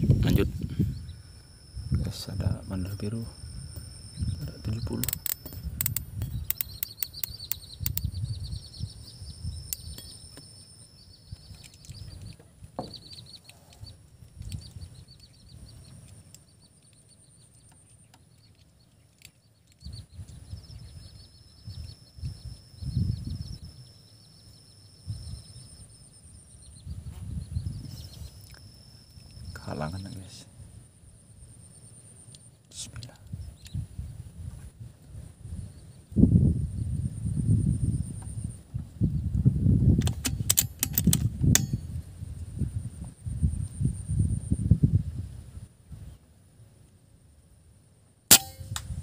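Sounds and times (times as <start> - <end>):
insects buzzing and trilling: 0.0 - 49.0
quick clicks: 4.8 - 8.2, 40.0 - 41.8.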